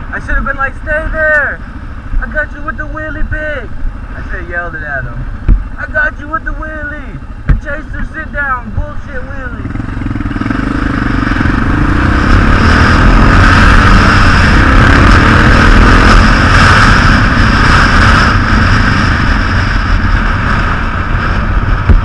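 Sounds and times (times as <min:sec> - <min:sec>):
wind noise on microphone: 0:02.0 - 0:22.0
motorcycle engine pulling away: 0:09.6 - 0:22.0.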